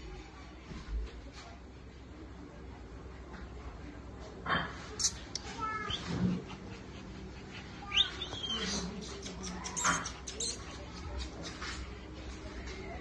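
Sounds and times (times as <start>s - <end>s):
puppies whining and yipping: 7.8s - 10.7s.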